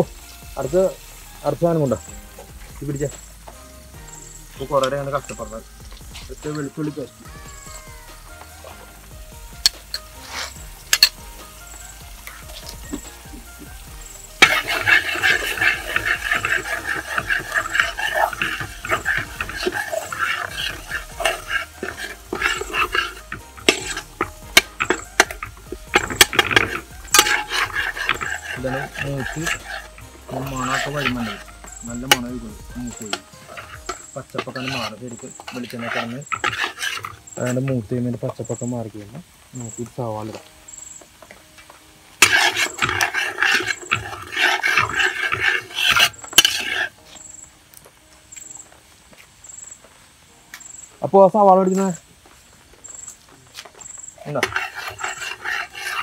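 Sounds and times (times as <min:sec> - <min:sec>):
paste frying in oil: 0:00.0 - 0:48.6, 0:50.9 - 0:56.0
ladle stirring and scraping pot: 0:03.9 - 0:38.7, 0:42.1 - 0:47.3, 0:53.8 - 0:56.0
ladle clinking against pot: 0:14.4 - 0:31.5.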